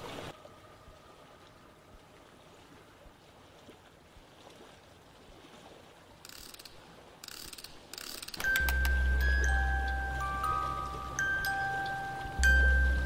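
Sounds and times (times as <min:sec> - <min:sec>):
music with deep bass: 0:08.6 - 0:13.0.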